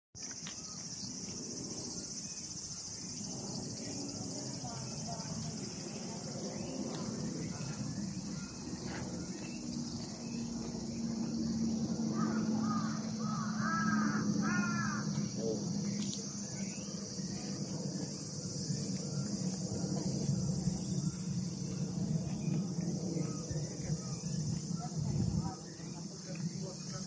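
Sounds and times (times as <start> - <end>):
high-pitched insect chorus: 0.2 - 27.0
crow cawing: 12.1 - 15.3.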